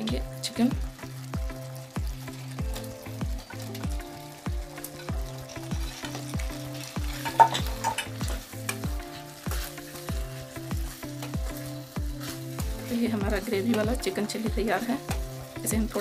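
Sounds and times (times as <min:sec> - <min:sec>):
background music with a beat: 0:00.0 - 0:16.0
sauce sizzling in a pan: 0:00.0 - 0:16.0
wooden spoon stirring in metal pan: 0:00.0 - 0:16.0
spoon knocking: 0:07.2 - 0:08.8.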